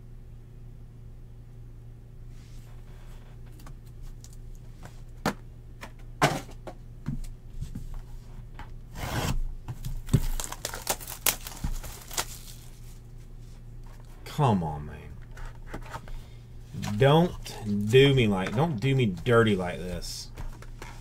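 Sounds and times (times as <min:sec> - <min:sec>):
cards rubbing and sliding: 0:08.9 - 0:09.4.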